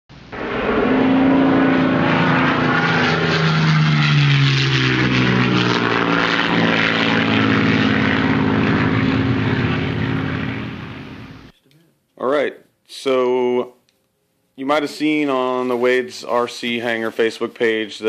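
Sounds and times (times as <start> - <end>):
model plane motor buzzing whine: 0.2 - 11.5.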